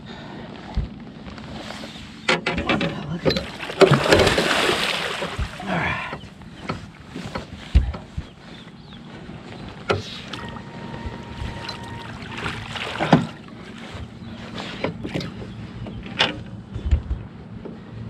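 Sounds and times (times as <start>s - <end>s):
steady low hum: 0.0s - 18.0s
knocks and clunks: 2.3s - 8.4s, 14.7s - 17.8s.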